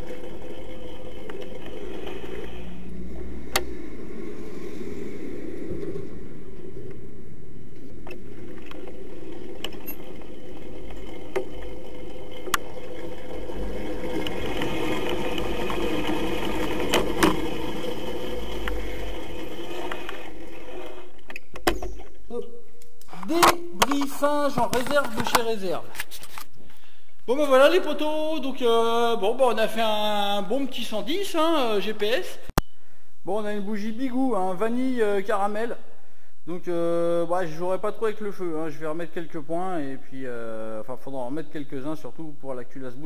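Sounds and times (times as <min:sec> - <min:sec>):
scooter engine running: 0:08.2 - 0:20.4.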